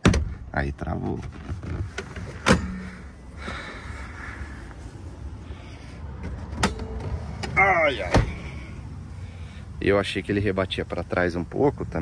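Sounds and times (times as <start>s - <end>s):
faint rubbing and handling noise: 0.8s - 5.3s.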